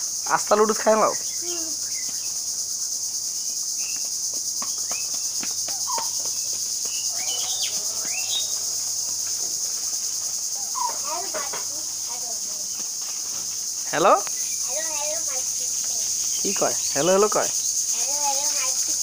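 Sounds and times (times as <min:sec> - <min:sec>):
insects droning: 0:00.0 - 0:19.0
bird chirps: 0:00.2 - 0:02.4, 0:03.3 - 0:11.7, 0:13.9 - 0:19.0.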